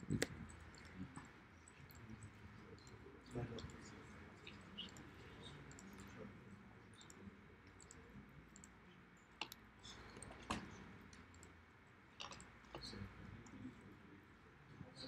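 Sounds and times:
computer mouse clicks: 0:04.5 - 0:06.2, 0:07.0 - 0:08.8, 0:09.4 - 0:11.6, 0:12.2 - 0:13.6.

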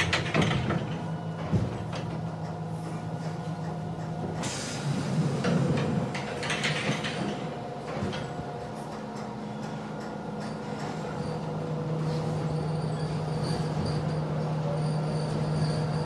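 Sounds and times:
knocks and rattles: 0:00.0 - 0:04.4, 0:05.4 - 0:11.0
subway train low hum: 0:00.0 - 0:16.0.

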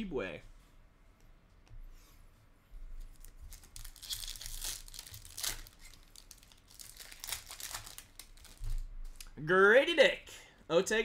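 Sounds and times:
foil wrapper crinkling and tearing: 0:03.1 - 0:09.3.

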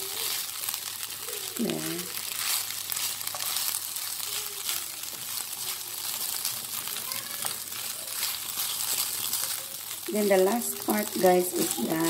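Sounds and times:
rice sizzling in a pan: 0:00.0 - 0:12.0
spatula scraping a pan: 0:02.2 - 0:10.0.

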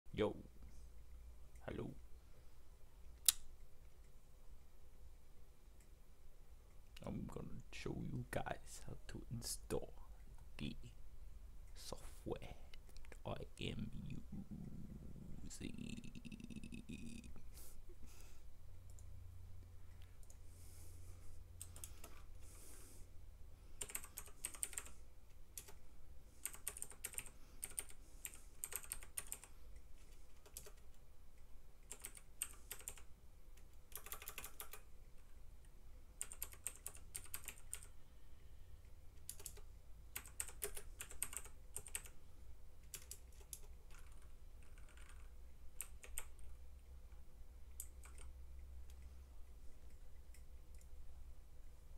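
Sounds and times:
faint low hum: 0:00.1 - 0:51.9
typing on keyboard: 0:21.6 - 0:22.2, 0:23.8 - 0:25.8, 0:26.4 - 0:31.0, 0:31.8 - 0:34.9, 0:36.2 - 0:38.0, 0:39.2 - 0:42.2, 0:42.8 - 0:46.6, 0:47.7 - 0:48.4.

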